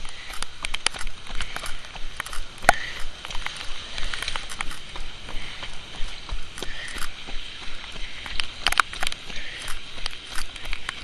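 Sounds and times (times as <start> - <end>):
pouring rain hiss: 0.0 - 11.0
running footsteps: 0.0 - 11.0.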